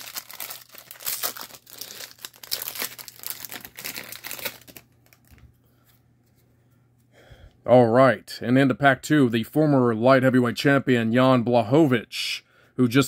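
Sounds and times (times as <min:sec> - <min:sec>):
plastic wrapper crinkling and tearing: 0:00.0 - 0:05.4.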